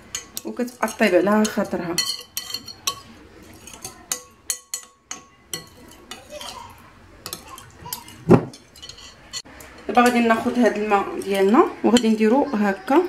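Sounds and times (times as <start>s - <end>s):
metal spoon clinking in glass bowl: 0.0s - 10.2s.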